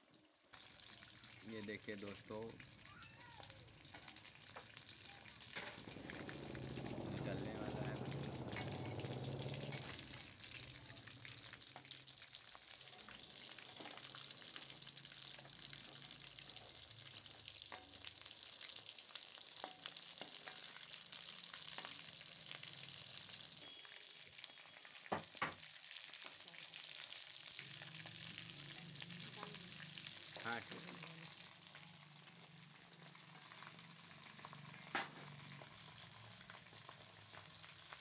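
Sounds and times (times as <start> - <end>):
food sizzling in hot oil: 0.0 - 38.0
metal skimmer scraping a pan: 5.4 - 10.6.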